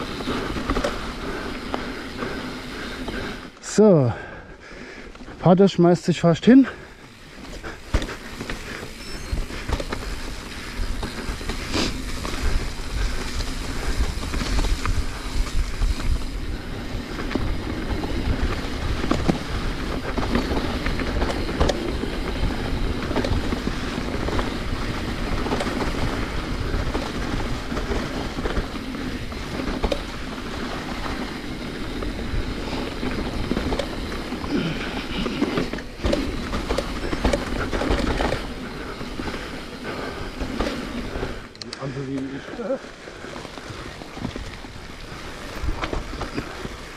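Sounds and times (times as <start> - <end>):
mountain bike tyres rumbling: 0.0 - 46.9
bike rattling knocks: 7.0 - 41.0.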